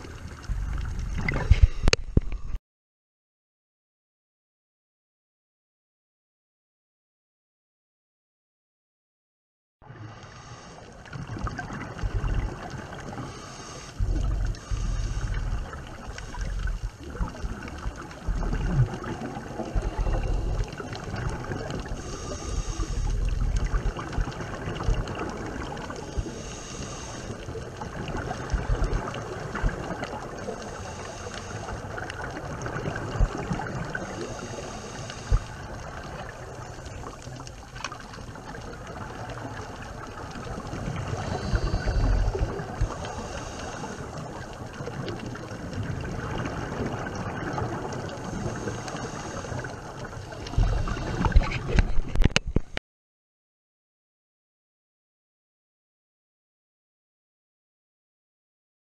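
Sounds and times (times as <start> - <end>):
regulator bubbles rumbling: 0.0 - 2.6, 11.0 - 52.8
underwater water noise: 0.0 - 2.6, 9.8 - 52.8.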